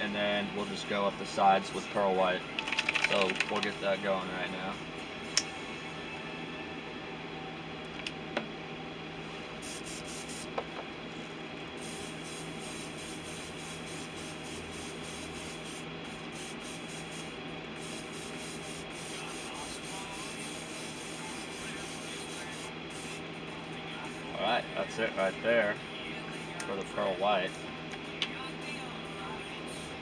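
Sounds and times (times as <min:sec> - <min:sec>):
airbrush spraying paint: 0:09.6 - 0:10.5, 0:11.8 - 0:23.2.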